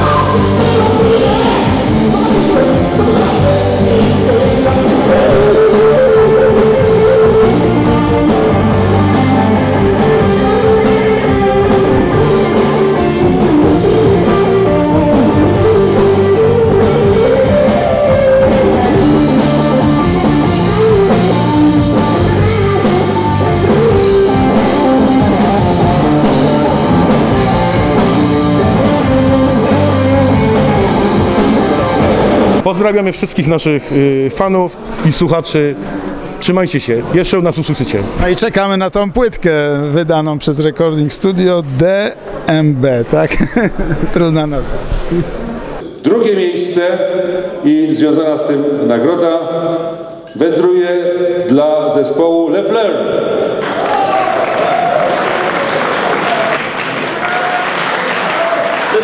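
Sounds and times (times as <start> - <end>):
electric guitar: 0.0 - 32.6
bass guitar: 0.0 - 32.7
drums: 0.0 - 32.8.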